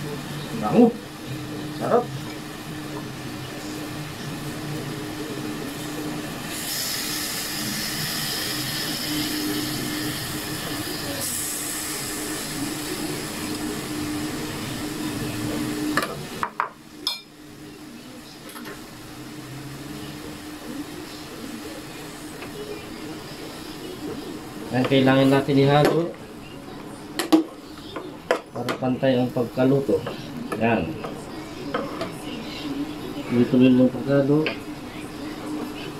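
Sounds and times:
meat sizzling in a pot: 0.0 - 35.9.

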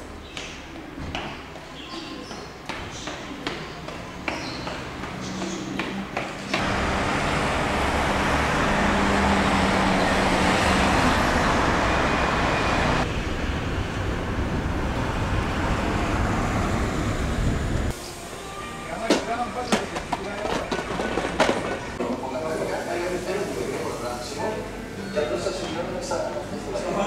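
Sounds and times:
cars passing: 2.5 - 22.0.

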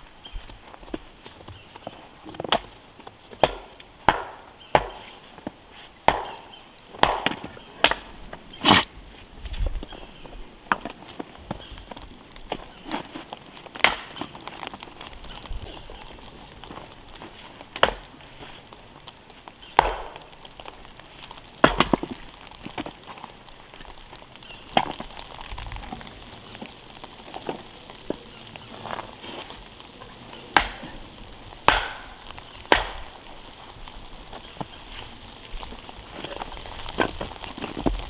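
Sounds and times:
hatchet chopping wood: 3.3 - 5.2, 6.1 - 8.1, 13.8 - 14.6, 17.8 - 18.1, 19.8 - 20.3, 21.6 - 22.1, 30.6 - 31.0, 31.6 - 33.1.

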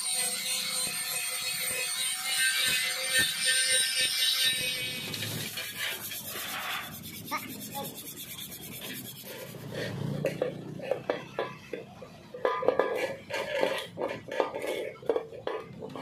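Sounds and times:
sanding metal panel: 0.1 - 9.9.

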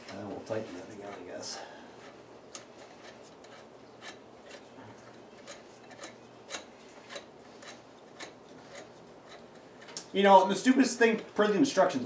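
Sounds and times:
lug nut clicking and rubbing: 2.0 - 10.1.

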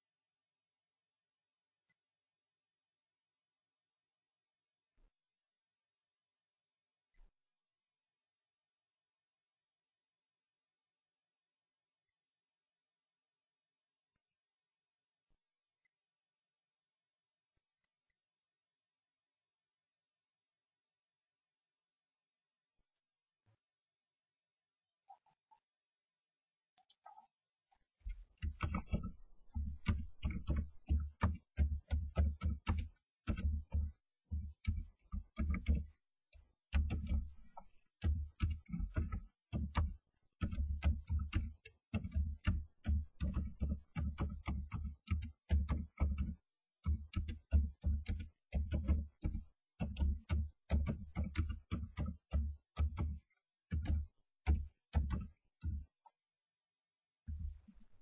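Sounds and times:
birds pecking inside wooden box: 28.1 - 56.0.

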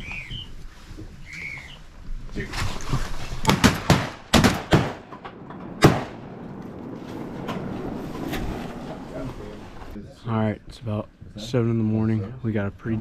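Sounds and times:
sharp bangs and knocks: 3.4 - 10.0.

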